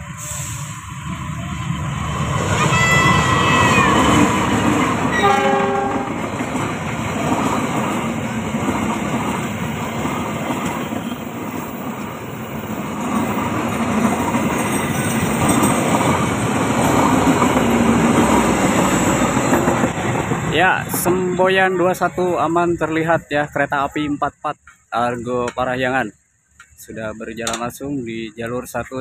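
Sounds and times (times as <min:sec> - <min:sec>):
train wheels on rails: 0:00.0 - 0:23.2
locomotive horn: 0:05.1 - 0:06.3.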